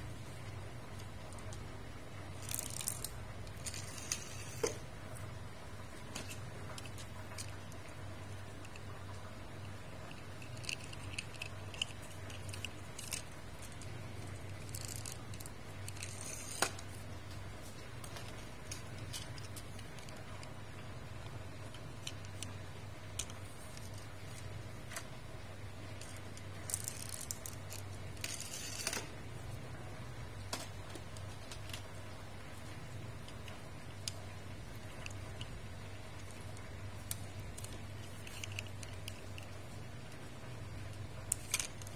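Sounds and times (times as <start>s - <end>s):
steady low hum: 0.0s - 41.9s
toy cars clicking on concrete: 2.3s - 4.7s, 6.2s - 16.9s, 25.9s - 29.1s, 33.2s - 40.2s, 40.9s - 41.9s.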